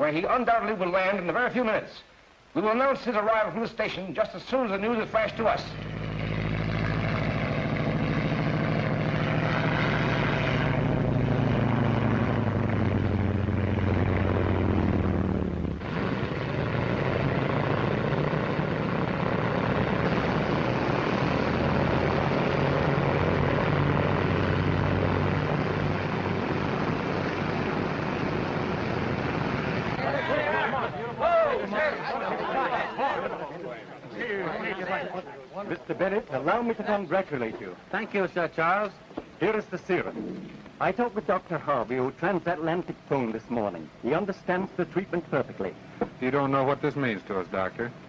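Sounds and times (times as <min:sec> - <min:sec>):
propeller airplane engines droning: 0:03.8 - 0:48.0.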